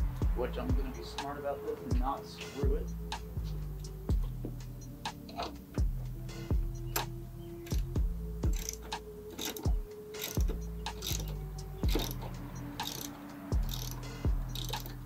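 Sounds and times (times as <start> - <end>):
background music beat: 0.0 - 15.0
ratchet wrench clicking: 6.8 - 15.0.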